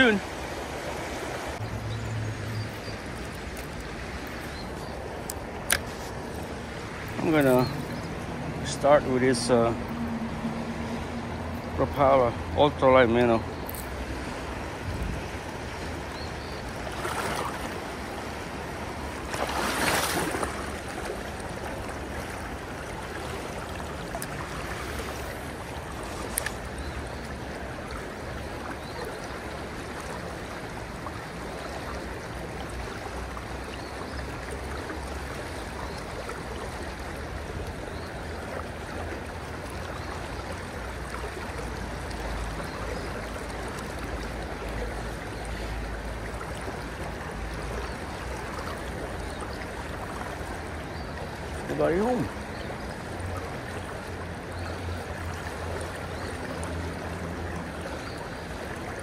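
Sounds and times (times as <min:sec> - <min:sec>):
creek water rushing over rocks: 0:00.0 - 0:59.0
loud water splash: 0:16.8 - 0:18.0, 0:18.9 - 0:22.3.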